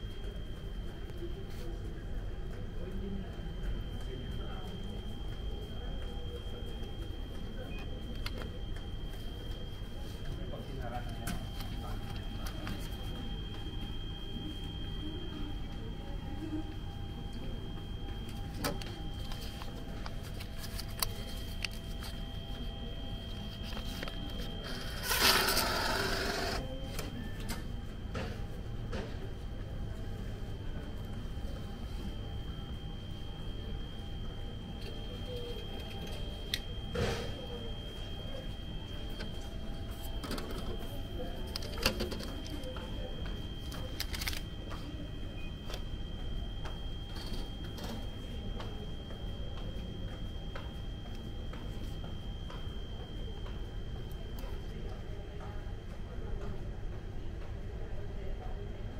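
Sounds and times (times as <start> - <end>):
machine humming with high whine: 0.0 - 58.9
paper and plastic rustling: 18.7 - 22.3, 23.3 - 25.6, 43.7 - 44.4.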